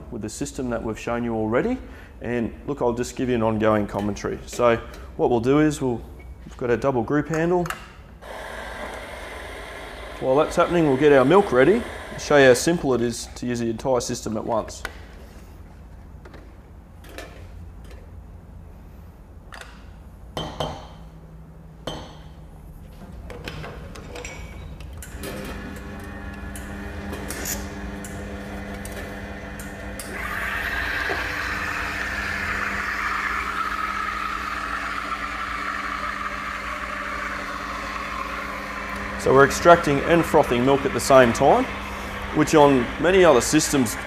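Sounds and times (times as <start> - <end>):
espresso machine humming: 8.2 - 12.5, 25.2 - 44.0.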